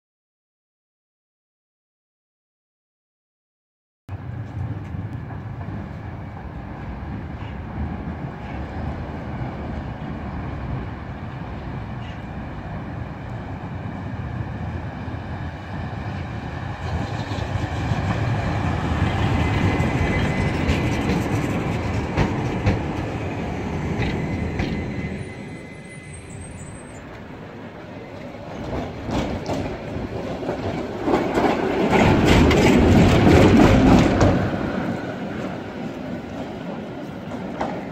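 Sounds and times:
tram rumbling past: 0:04.1 - 0:37.9
rail joints clicking: 0:16.0 - 0:25.2, 0:27.0 - 0:37.9
wheel squeal: 0:19.1 - 0:21.8, 0:23.0 - 0:27.2.

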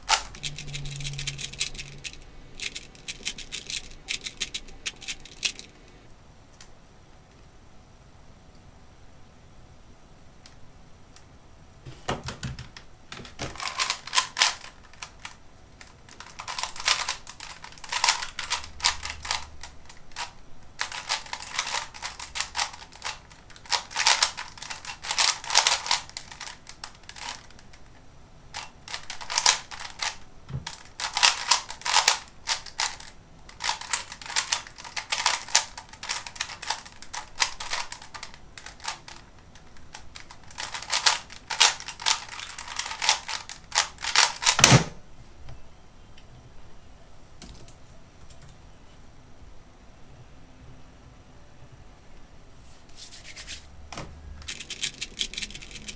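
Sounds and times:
plastic puzzle cube clicking: 0:16.1 - 0:19.5, 0:20.2 - 0:27.7, 0:28.9 - 0:44.6, 0:54.4 - 0:55.9.

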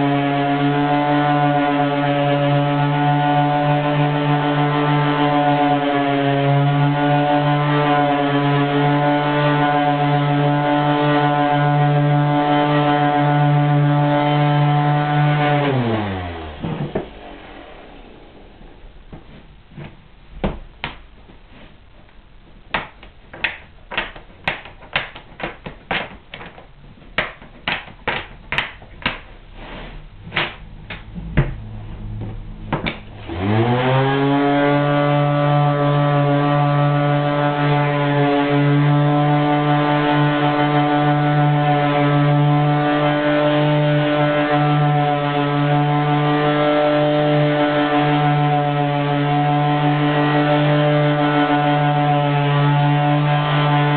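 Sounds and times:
orbital sander running: 0:00.0 - 0:18.0, 0:32.6 - 0:53.9
sharp clacks and knocks: 0:19.1 - 0:21.5, 0:22.7 - 0:29.4, 0:30.2 - 0:33.2.

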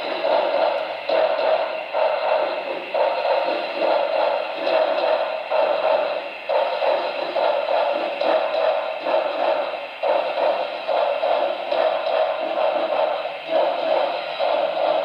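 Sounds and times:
thin hissy steam chuffs: 0:00.0 - 0:15.0.

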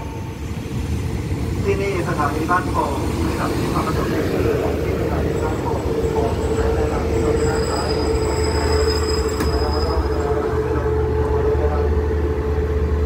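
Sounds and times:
train engine rumble: 0:00.0 - 0:13.0.

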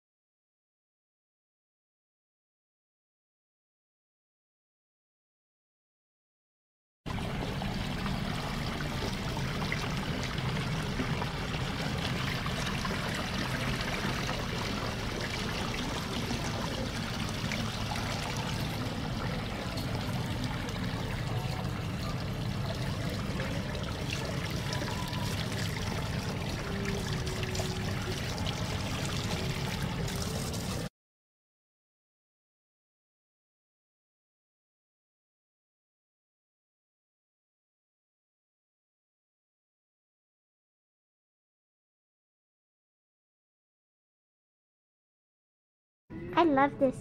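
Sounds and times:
water pouring over rocks: 0:07.6 - 0:30.9.

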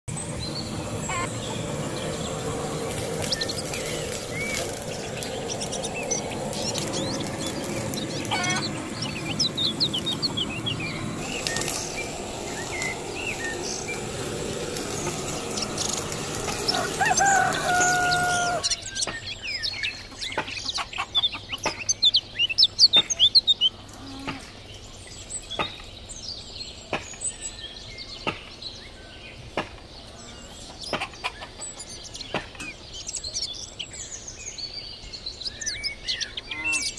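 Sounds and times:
gas blowtorch hissing: 0:00.1 - 0:18.7
birds chirping: 0:00.1 - 0:36.9.

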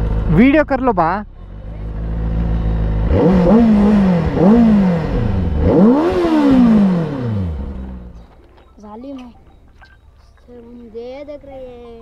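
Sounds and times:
motorcycle engine revving: 0:00.0 - 0:08.6.

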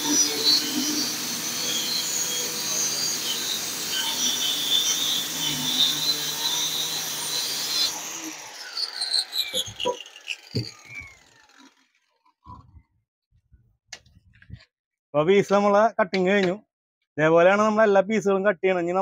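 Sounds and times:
saw motor winding down: 0:00.0 - 0:12.6
circular saw cutting plywood: 0:00.0 - 0:12.7
knocks: 0:10.5 - 0:10.7.

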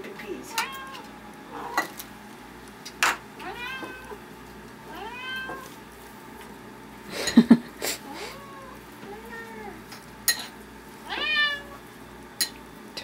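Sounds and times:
cat meowing: 0:00.5 - 0:01.9, 0:03.4 - 0:04.2, 0:04.9 - 0:05.7, 0:08.0 - 0:09.8, 0:11.1 - 0:11.8.

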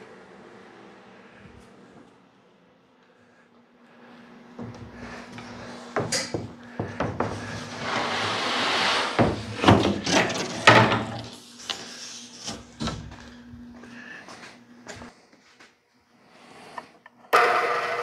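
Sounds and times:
plywood sheet scraping over table: 0:07.2 - 0:11.3.

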